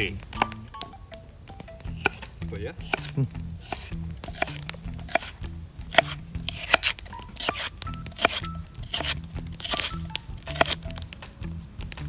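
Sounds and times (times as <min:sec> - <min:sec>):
knife slicing celery on wooden board: 0:02.0 - 0:10.8.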